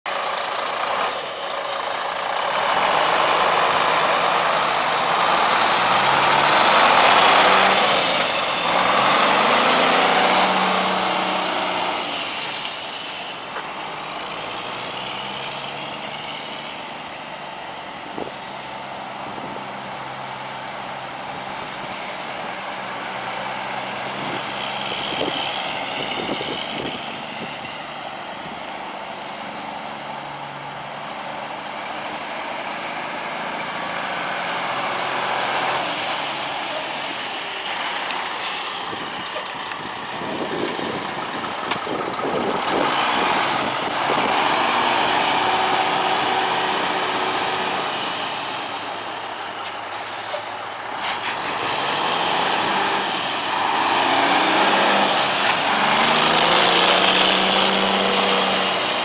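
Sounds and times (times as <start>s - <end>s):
diesel truck engine revving and idling: 0.1s - 59.0s.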